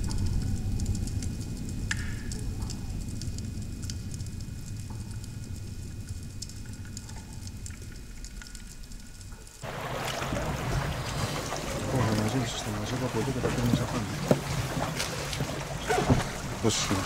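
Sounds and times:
faint underwater clicks: 0.0s - 17.0s
underwater low rumble: 0.0s - 17.0s
water and wind rushing: 9.6s - 17.0s.

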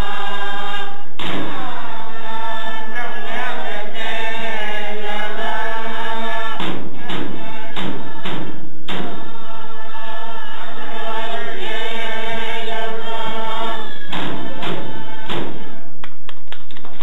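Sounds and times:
frame drums struck with sticks: 0.0s - 2.4s, 3.2s - 9.6s, 14.0s - 16.0s
group chanting in unison: 0.0s - 15.9s.

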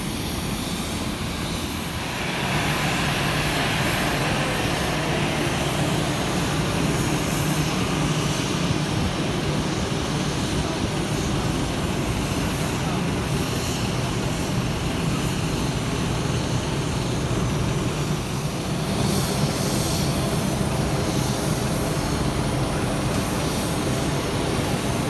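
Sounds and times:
jet engines running: 0.0s - 25.0s.

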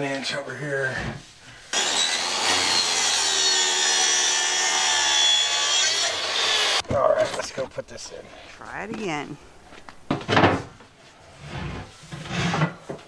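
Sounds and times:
circular saw cutting plywood: 1.7s - 6.8s.

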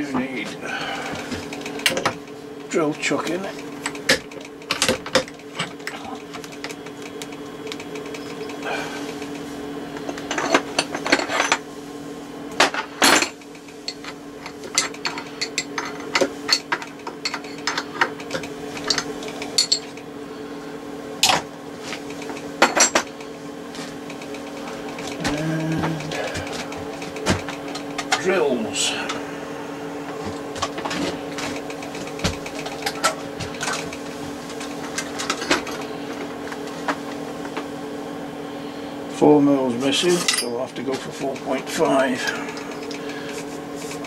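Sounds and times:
steady hum: 0.0s - 44.0s
metal tools clinking: 13.0s - 20.0s, 40.1s - 40.6s.

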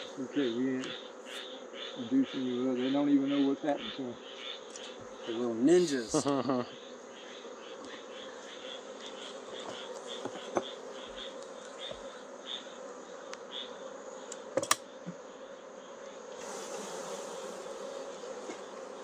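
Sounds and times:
honeybees buzzing: 0.0s - 19.0s
hive tool clicking: 14.2s - 14.9s.

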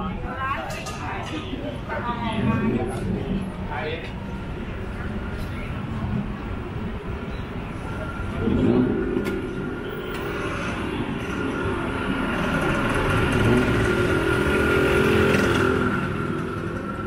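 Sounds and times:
motor vehicles passing: 1.0s - 17.0s
steady high whine: 1.8s - 13.4s.

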